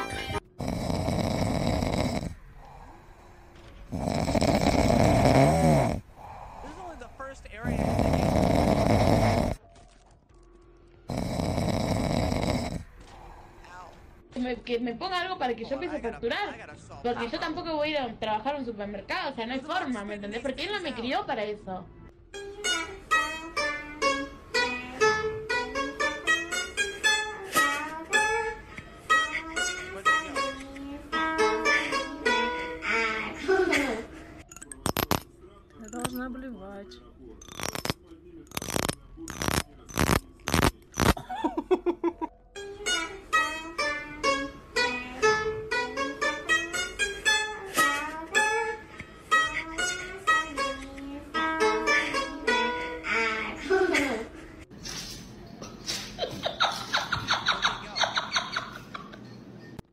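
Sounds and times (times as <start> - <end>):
plucked lute melody: 22.4 - 28.5, 29.1 - 33.0, 42.6 - 48.7, 49.3 - 53.4.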